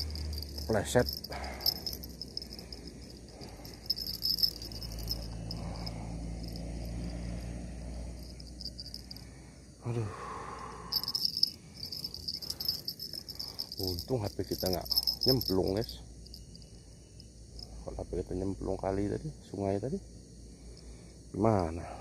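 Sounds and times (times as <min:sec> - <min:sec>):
handling bumps: 0:00.0 - 0:06.6
insects trilling: 0:00.0 - 0:22.0.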